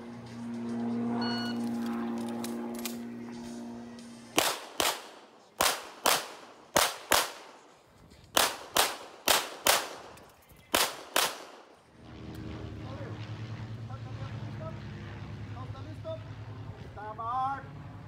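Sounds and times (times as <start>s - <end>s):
pistol shots in quick pairs: 4.4s - 7.6s, 8.3s - 11.7s.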